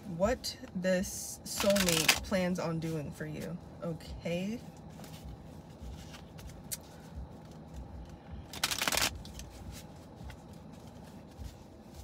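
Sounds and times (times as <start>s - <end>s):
cards being shuffled: 1.6s - 2.3s, 4.7s - 12.0s.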